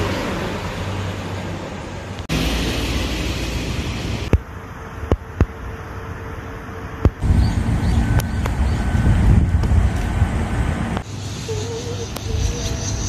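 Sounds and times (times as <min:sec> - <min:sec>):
road traffic: 0:00.0 - 0:13.0
wind noise: 0:07.0 - 0:13.0.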